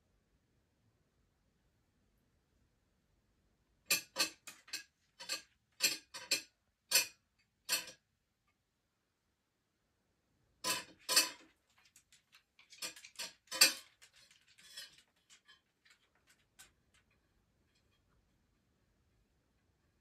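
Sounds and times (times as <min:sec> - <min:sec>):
metal fork clinking against plate: 0:03.9 - 0:07.1, 0:07.7 - 0:08.0, 0:10.6 - 0:11.4, 0:12.7 - 0:15.5.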